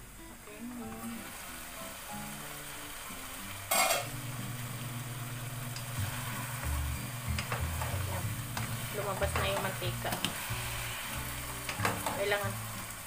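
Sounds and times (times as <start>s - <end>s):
chicken sizzling in fat: 0.0s - 13.0s
spatula stirring in pot: 6.0s - 12.2s.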